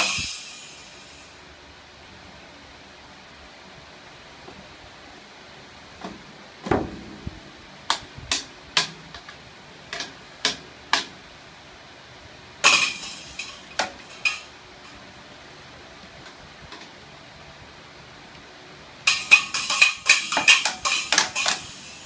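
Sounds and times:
toy drums struck with sticks: 0:00.0 - 0:01.2, 0:12.6 - 0:15.0, 0:19.1 - 0:22.0
toy cymbal crash: 0:00.0 - 0:01.4, 0:12.6 - 0:15.0, 0:19.1 - 0:22.0.

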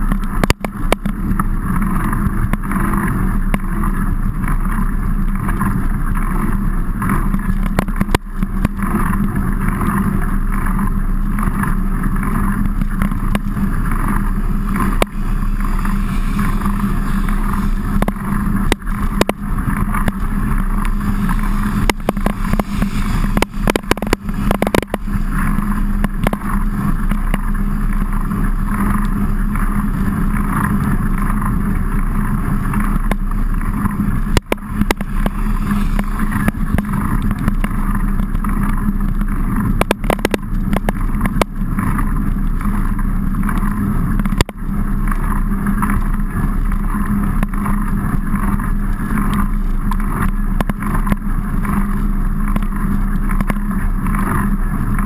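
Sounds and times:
wind and road vibration rumble: 0:00.0 - 0:55.0.

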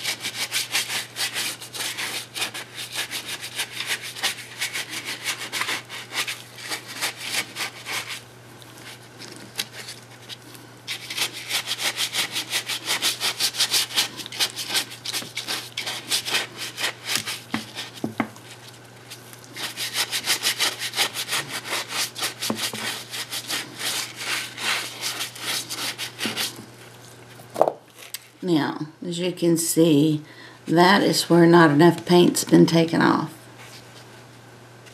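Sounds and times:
paintbrush scrubbing a shell: 0:00.0 - 0:26.8.

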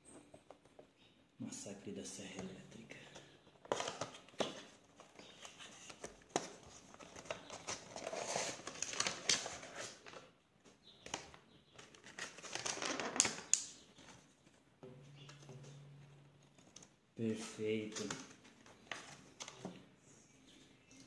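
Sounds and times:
plastic packaging crinkling: 0:03.6 - 0:05.5, 0:06.4 - 0:10.3, 0:11.1 - 0:13.8.

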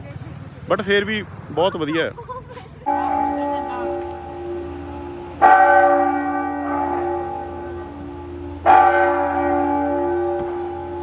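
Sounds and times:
clock tower bell striking: 0:02.9 - 0:11.0.

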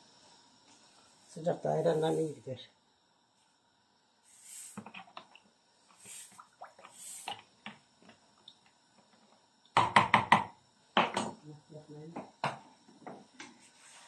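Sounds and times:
salt shaker hissing: 0:00.0 - 0:02.7, 0:03.3 - 0:08.0.

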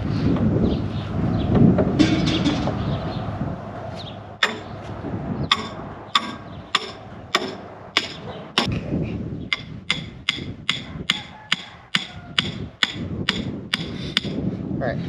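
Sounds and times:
hammer striking steel stake: 0:04.4 - 0:04.8, 0:05.5 - 0:08.7, 0:09.5 - 0:14.4.

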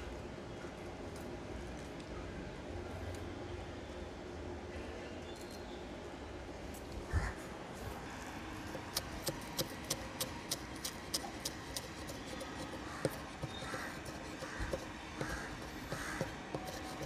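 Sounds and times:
knife chopping on wooden board: 0:08.7 - 0:17.0.

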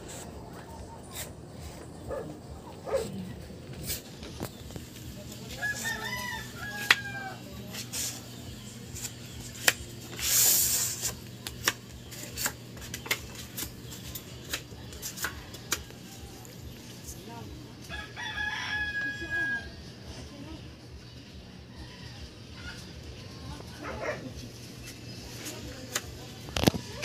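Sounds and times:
rooster crowing: 0:05.4 - 0:07.6, 0:17.9 - 0:19.8.

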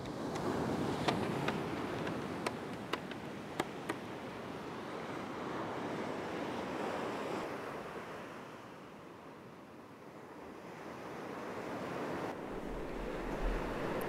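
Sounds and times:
wind: 0:00.0 - 0:14.0
surf washing onto beach: 0:11.4 - 0:14.0.

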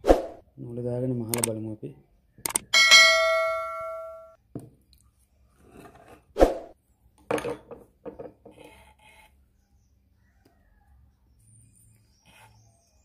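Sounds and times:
struck metal ringing: 0:02.7 - 0:04.4.

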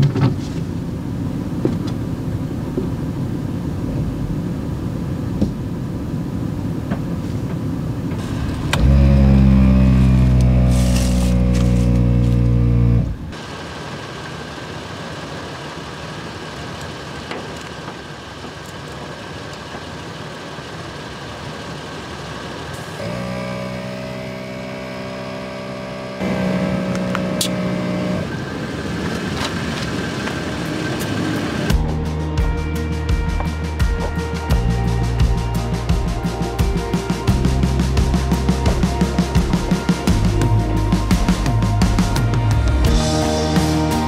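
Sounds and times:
engine hum: 0:00.0 - 0:44.0
tyre and road noise: 0:00.0 - 0:44.0.

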